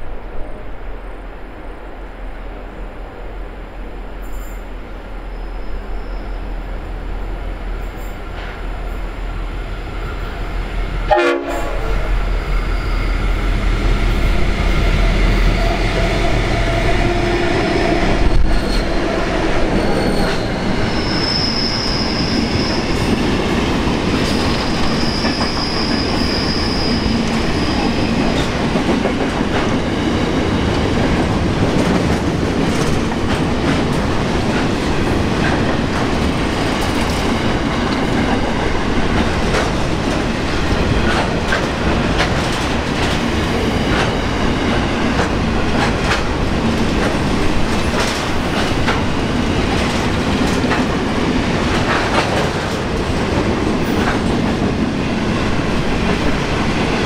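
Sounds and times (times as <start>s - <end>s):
high-pitched wheel squeal: 19.7s - 22.9s.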